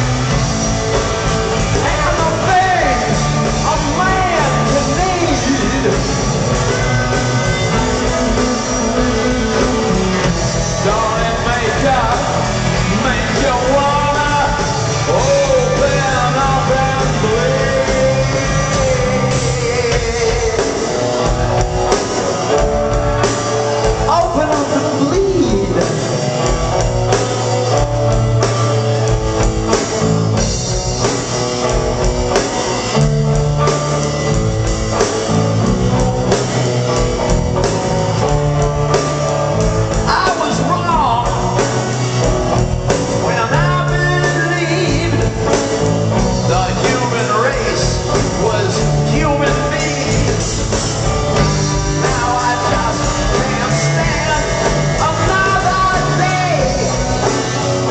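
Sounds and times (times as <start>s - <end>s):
live rock band playing: 0.0s - 57.9s
man singing lead vocals: 1.6s - 22.6s, 23.2s - 26.8s, 40.0s - 57.9s.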